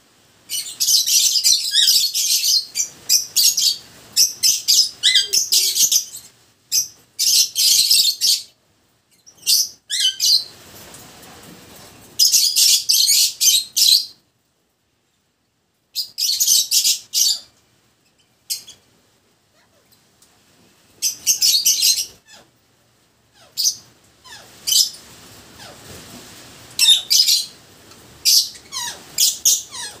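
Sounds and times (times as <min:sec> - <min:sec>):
lovebirds chirping: 0:00.5 - 0:10.6, 0:21.0 - 0:22.5, 0:26.8 - 0:27.6, 0:28.2 - 0:30.0.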